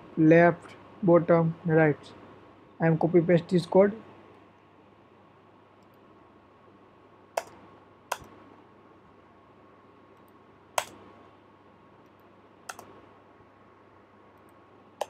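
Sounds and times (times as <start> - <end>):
keyboard keystrokes: 7.4 - 8.3, 10.8 - 11.0, 12.7 - 12.9.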